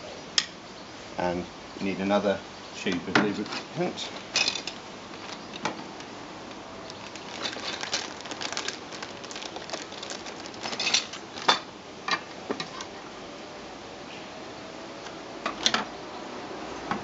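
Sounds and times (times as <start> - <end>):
plastic bag crinkling: 4.2 - 11.6.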